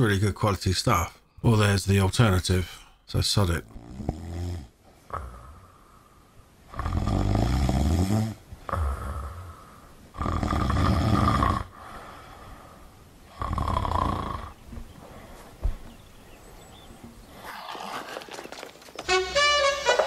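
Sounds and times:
man snoring: 3.8s - 5.7s, 6.7s - 12.0s, 13.3s - 14.6s.

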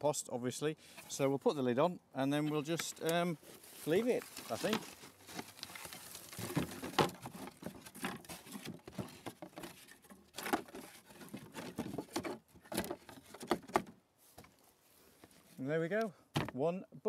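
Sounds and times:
rustling: 2.4s - 15.7s
wooden lid knocking and scraping: 6.3s - 13.9s.

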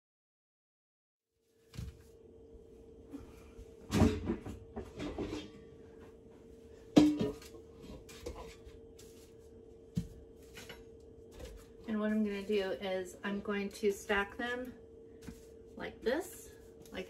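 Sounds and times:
faint hum: 1.4s - 17.0s
pot knocking and clattering: 7.0s - 7.5s.

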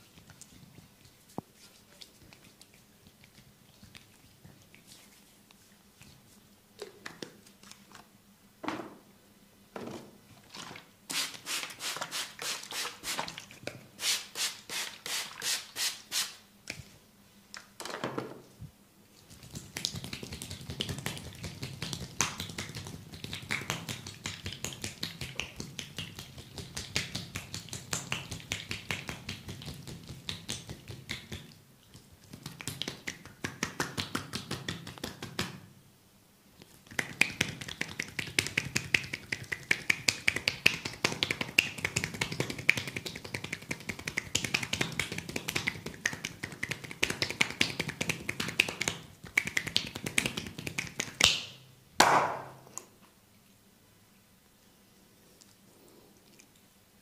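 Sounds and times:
hands slapping oiled skin: 19.3s - 35.7s, 36.9s - 52.6s.

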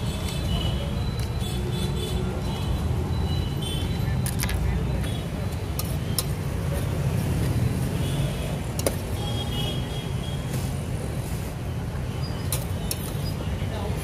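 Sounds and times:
road traffic rumble: 0.0s - 14.0s.

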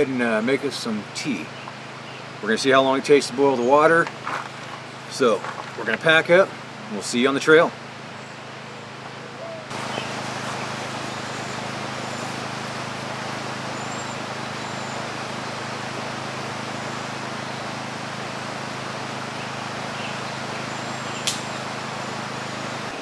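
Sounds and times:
low machine-like hum: 0.0s - 23.0s
steady outdoor hiss: 0.0s - 23.0s
sharp snap: 21.2s - 21.5s.

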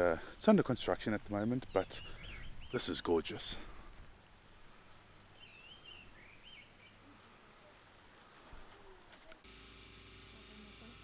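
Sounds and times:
insects chorus: 0.0s - 11.0s
warbling bird calls: 1.2s - 4.1s, 5.3s - 7.9s.

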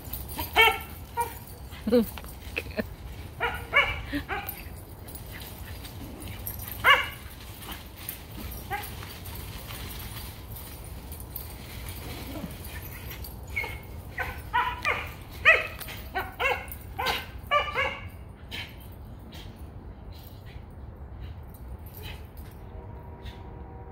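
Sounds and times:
dog barking: 0.6s - 1.4s, 3.4s - 4.6s, 6.8s - 7.2s, 13.6s - 18.1s.

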